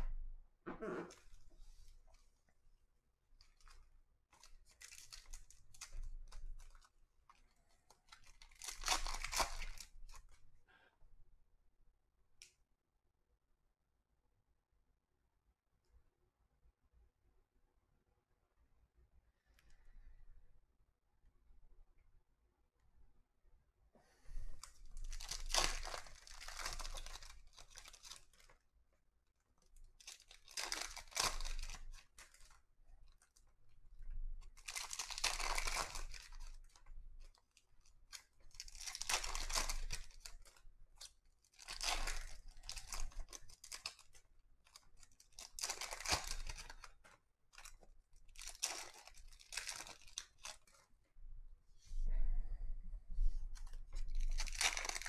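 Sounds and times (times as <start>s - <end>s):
foil wrapper tearing and crinkling: 4.4s - 6.9s, 7.8s - 10.4s, 24.6s - 28.6s, 29.9s - 33.5s, 34.1s - 50.8s, 53.6s - 55.0s.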